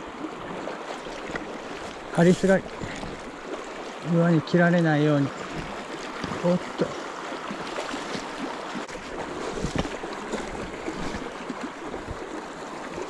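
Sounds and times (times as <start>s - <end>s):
creek current rushing: 0.0s - 13.0s.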